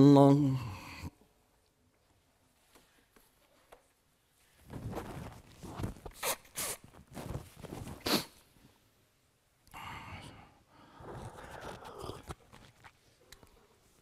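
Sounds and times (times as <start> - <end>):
clothing rustling: 2.0 - 8.9.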